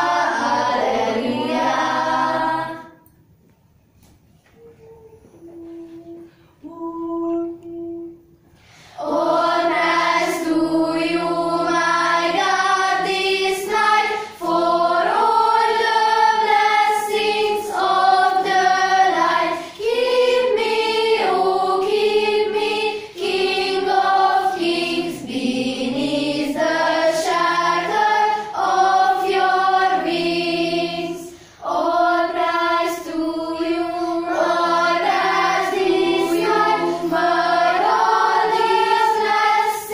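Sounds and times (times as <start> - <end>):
choir singing in harmony: 0.0 - 3.1, 8.9 - 39.9
singers breathing: 8.5 - 9.0, 31.2 - 31.6.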